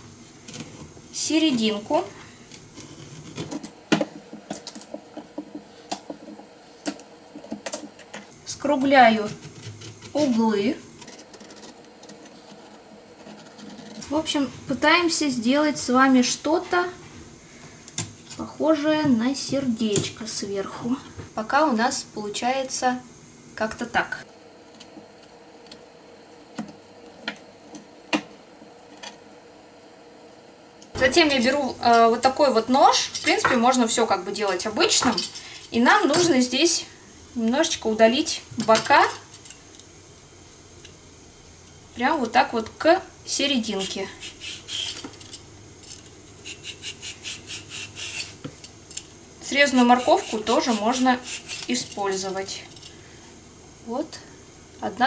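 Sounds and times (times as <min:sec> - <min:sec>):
blade carving a carrot: 0:49.8 - 0:51.7.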